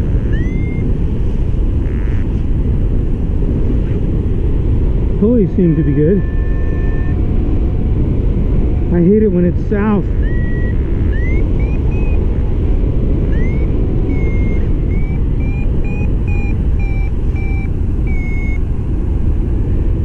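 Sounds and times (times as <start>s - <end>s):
variometer beeping: 0.0s - 2.4s, 5.2s - 7.5s, 8.5s - 18.7s
wind rush on microphone: 0.0s - 20.0s.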